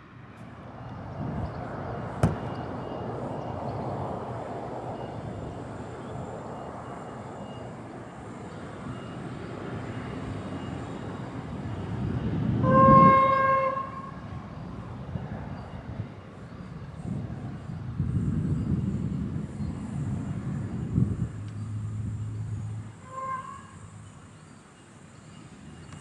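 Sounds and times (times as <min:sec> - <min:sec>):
diesel railcar running: 0:00.0 - 0:26.0
train horn: 0:12.6 - 0:14.3, 0:23.0 - 0:24.1.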